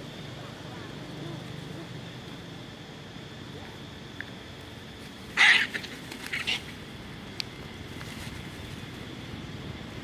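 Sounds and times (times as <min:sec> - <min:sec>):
monkeys screaming and squealing: 0:05.2 - 0:06.8.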